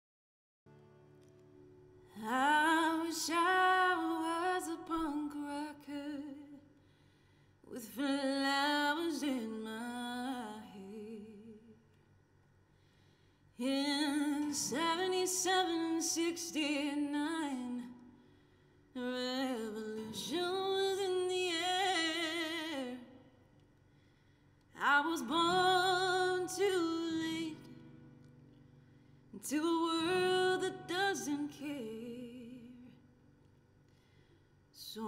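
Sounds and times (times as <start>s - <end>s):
woman singing slow melody: 2.1s - 6.7s, 7.6s - 11.8s, 13.6s - 18.1s, 19.0s - 23.3s, 24.8s - 28.2s, 29.3s - 33.0s, 34.8s - 35.0s.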